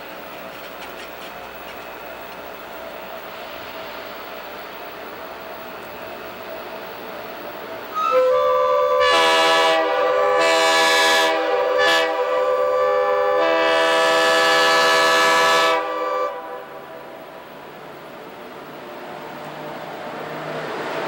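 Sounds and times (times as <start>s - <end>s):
faint train rumble: 0.0s - 21.0s
locomotive air horn chord: 8.0s - 16.8s.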